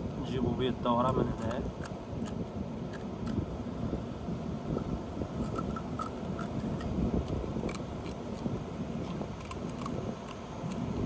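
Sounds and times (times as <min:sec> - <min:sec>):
low wind rumble: 0:00.0 - 0:11.0
scissors crunching through shell: 0:00.9 - 0:03.4, 0:05.4 - 0:11.0.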